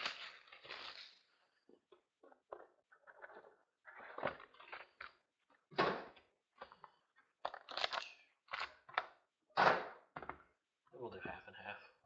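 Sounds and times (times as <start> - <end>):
packaging rustling and crinkling: 0.0 - 1.4.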